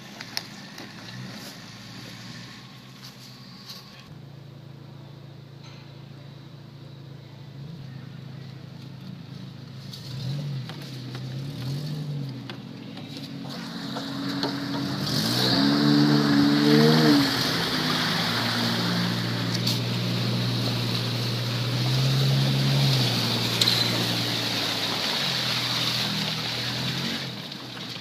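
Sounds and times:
engine revving: 7.6s - 28.0s.

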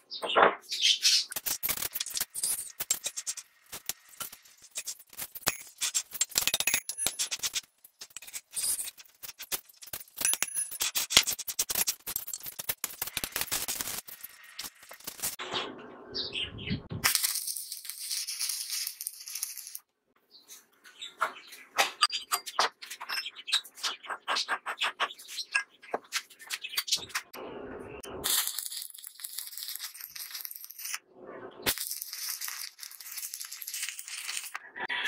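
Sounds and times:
welding arc crackling and sizzling: 1.2s - 15.4s, 28.2s - 31.0s, 31.6s - 34.6s.

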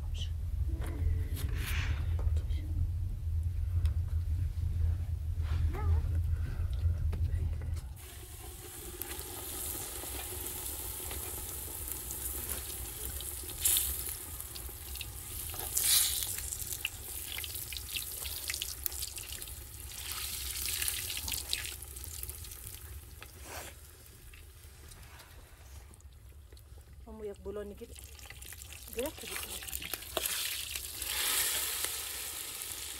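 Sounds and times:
flatbread sizzling in hot oil: 8.0s - 24.8s, 27.9s - 32.9s
oil crackling and spitting: 8.0s - 25.3s, 27.9s - 32.9s.

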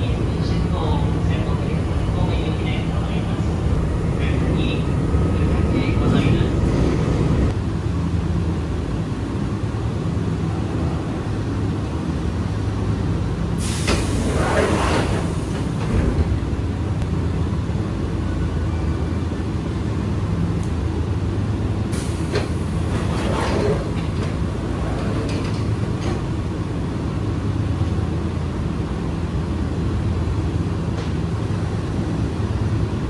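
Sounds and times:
train doors opening with hiss: 13.6s - 16.4s, 21.9s - 26.4s
train doors thumping shut: 13.6s - 16.5s, 22.0s - 26.5s.

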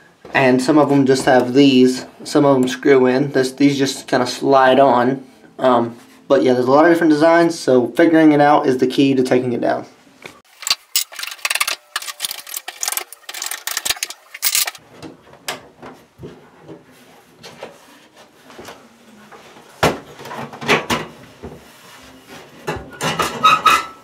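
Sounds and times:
rubbing and handling: 10.4s - 14.8s
metal clicks and scrapes: 10.5s - 14.8s.

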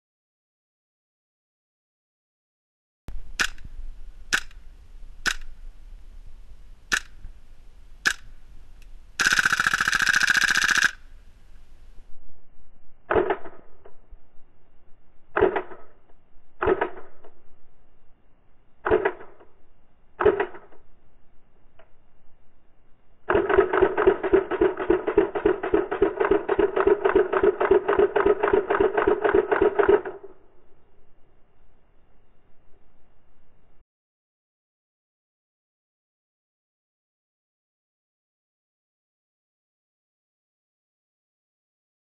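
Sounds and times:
airsoft rifle full-auto burst: 3.4s - 3.6s, 6.9s - 7.2s, 8.0s - 8.3s, 9.2s - 11.1s, 23.3s - 30.3s
airsoft rifle single shots: 3.4s - 3.7s, 4.3s - 4.6s, 5.2s - 5.6s, 6.9s - 7.3s, 8.0s - 8.3s, 13.1s - 13.6s, 16.6s - 17.2s, 20.2s - 20.8s.

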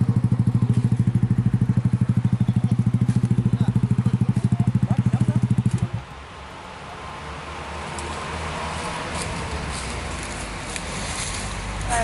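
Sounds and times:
scooter engine idling: 0.0s - 6.1s.

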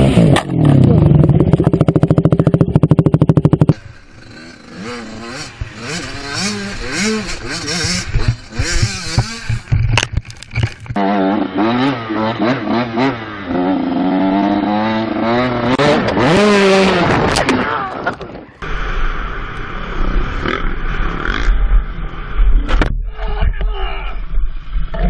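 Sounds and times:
dirt bike engine revving: 0.0s - 9.8s, 10.9s - 17.4s.

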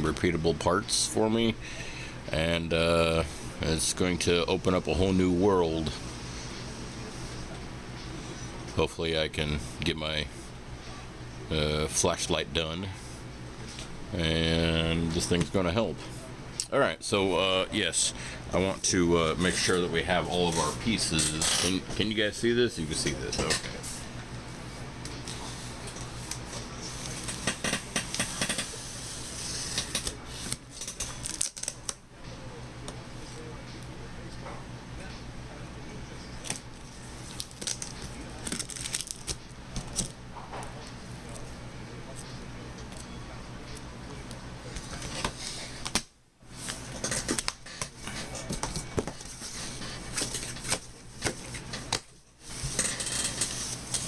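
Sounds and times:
packing tape being slit open: 29.7s - 32.0s, 37.3s - 40.1s.

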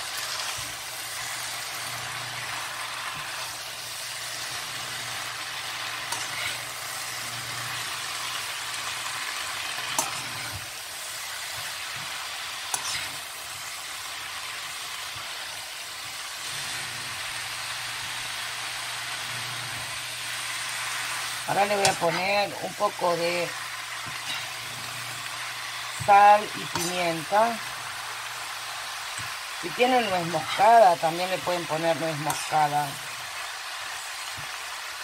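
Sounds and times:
spinach sizzling in wok: 0.0s - 35.0s
metal utensil stirring: 6.0s - 6.8s, 9.6s - 10.7s, 12.7s - 13.2s.

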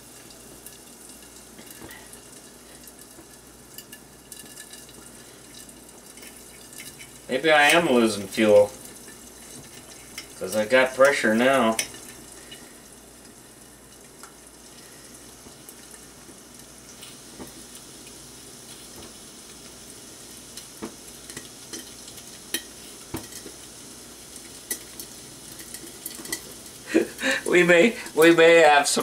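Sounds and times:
eggs sizzling in pan: 0.0s - 29.0s.

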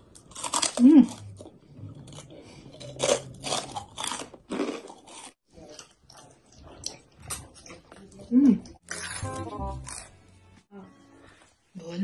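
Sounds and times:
crunching pork rinds: 0.0s - 7.9s.

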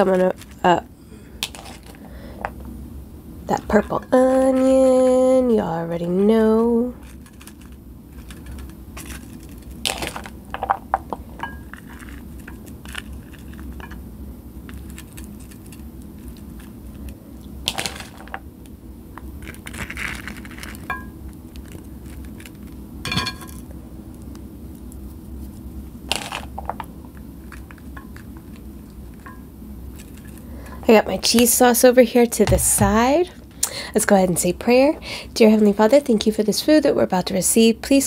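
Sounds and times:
crunchy taco shells crackling: 6.6s - 30.8s.

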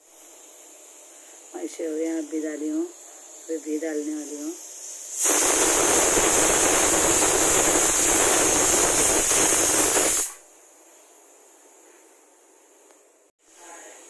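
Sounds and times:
loud steady hiss: 0.0s - 11.9s, 12.7s - 14.0s.

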